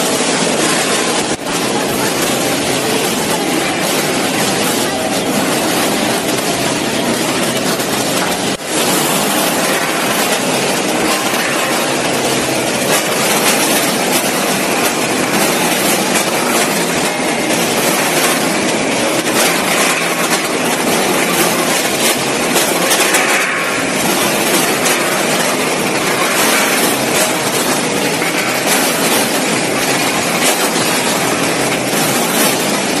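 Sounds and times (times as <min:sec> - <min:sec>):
machine noise: 0:00.0 - 0:33.0
frozen pieces clattering on steel: 0:08.0 - 0:33.0.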